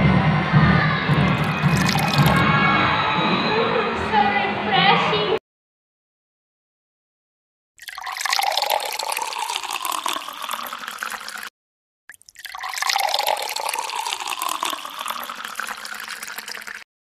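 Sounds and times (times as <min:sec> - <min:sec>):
water pouring onto concrete: 0:01.4 - 0:02.4, 0:07.8 - 0:11.5, 0:12.1 - 0:16.9.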